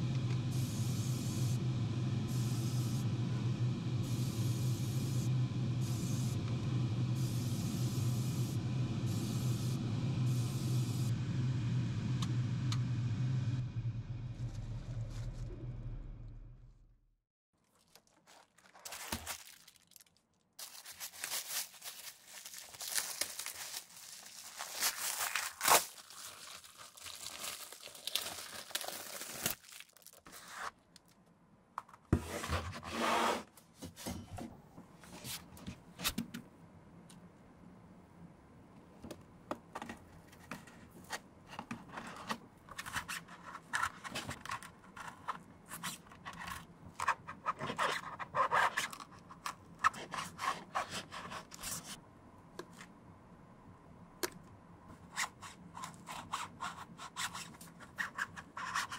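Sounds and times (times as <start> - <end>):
tape peeling and crinkling: 17.6 - 31.2.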